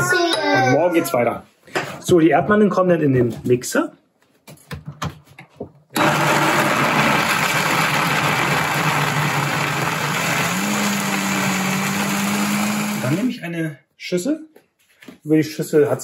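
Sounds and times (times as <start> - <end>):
blender motor running: 6.0 - 13.3.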